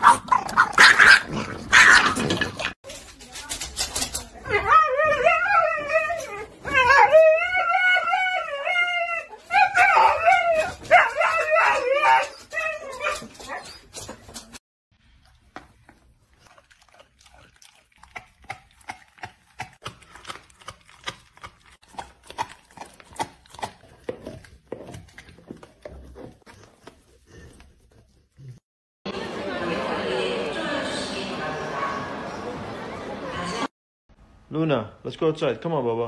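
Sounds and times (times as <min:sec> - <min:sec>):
dog chewing a bone: 0:15.2 - 0:28.2.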